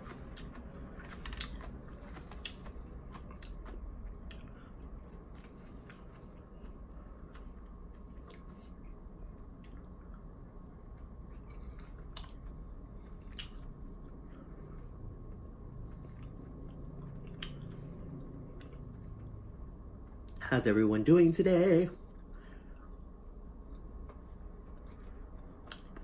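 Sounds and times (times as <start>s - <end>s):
person chewing salad: 0.0s - 20.4s, 22.1s - 26.0s.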